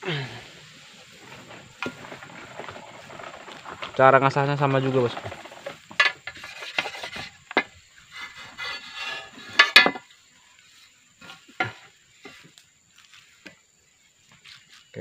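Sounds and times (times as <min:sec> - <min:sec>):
whetstone scraping steel blade: 0:08.1 - 0:09.7
stone clacking on metal: 0:08.6 - 0:10.0.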